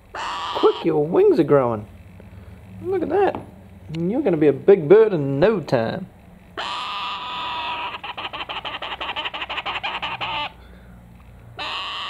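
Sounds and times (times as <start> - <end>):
bird chick rasping calls: 0.0 - 1.0, 6.5 - 10.9, 11.6 - 12.0.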